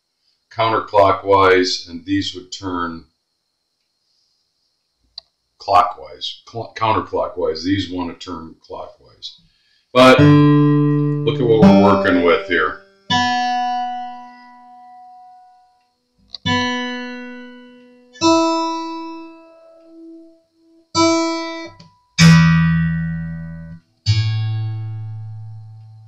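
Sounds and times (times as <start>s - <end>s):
acoustic guitar strings plucked: 10.0s - 15.4s, 21.0s - 26.0s.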